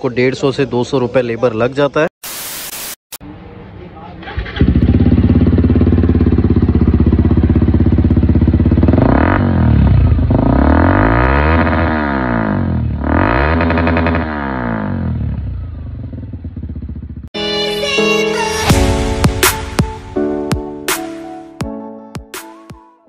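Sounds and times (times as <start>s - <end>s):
motorcycle engine idling and revving: 3.4s - 17.4s.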